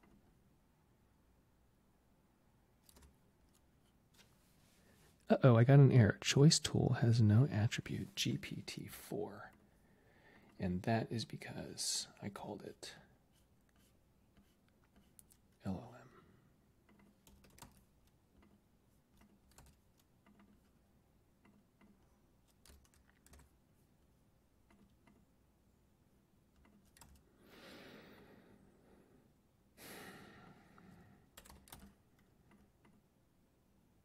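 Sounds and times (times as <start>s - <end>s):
typing on computer keyboard: 2.8s - 3.6s, 16.9s - 18.6s, 19.2s - 20.7s, 21.5s - 23.5s, 26.5s - 27.2s, 31.4s - 33.0s.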